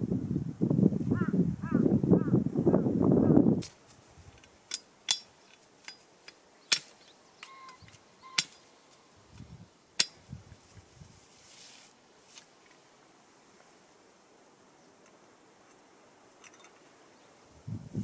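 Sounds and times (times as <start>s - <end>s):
soft low rustling: 10.2s - 12.9s.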